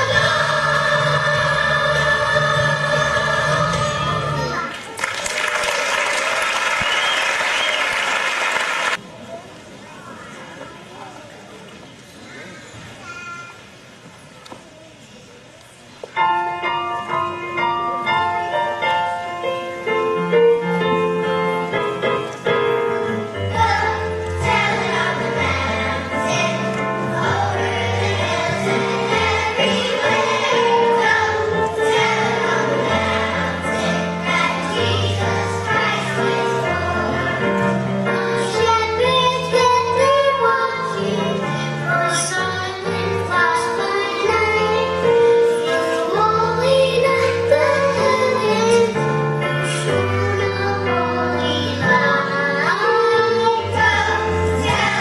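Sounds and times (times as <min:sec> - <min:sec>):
children's choir singing a carol: 0:00.0 - 0:04.8, 0:16.2 - 0:55.0.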